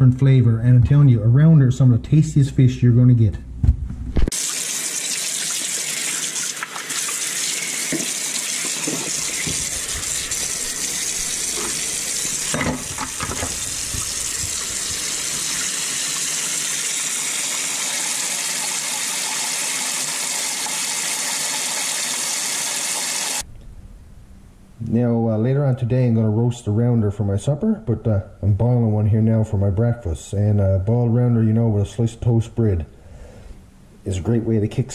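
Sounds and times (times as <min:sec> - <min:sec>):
tap water running into sink: 0:04.3 - 0:23.4.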